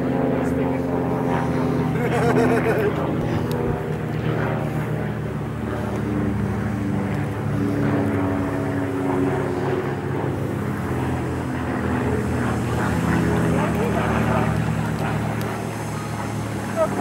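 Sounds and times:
engine droning at low revs: 0.0s - 17.0s.

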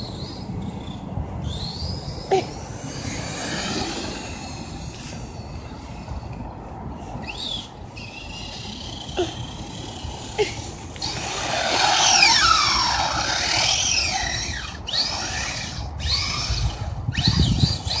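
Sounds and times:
rc truck motor whining: 7.2s - 18.0s.

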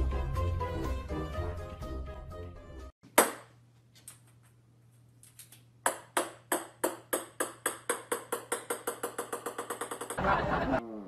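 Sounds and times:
ball bouncing on wooden floor: 5.8s - 10.2s.

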